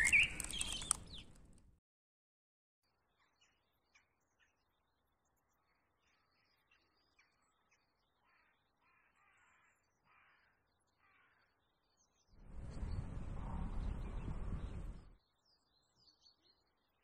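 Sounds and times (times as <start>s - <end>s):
crow cawing: 8.8s - 11.4s
rushing noise with deep rumble: 12.4s - 15.2s.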